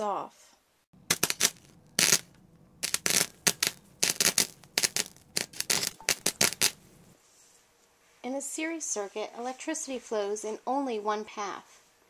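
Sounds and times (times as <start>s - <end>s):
short scratchy crackles: 1.0s - 7.2s.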